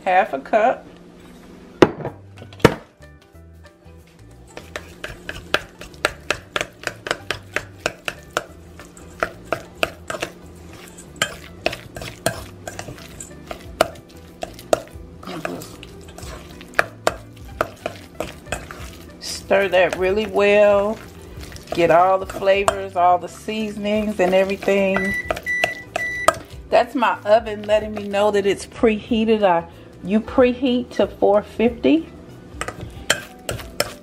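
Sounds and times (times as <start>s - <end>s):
metal spoon clinking in bowl: 8.4s - 14.9s, 32.6s - 34.0s.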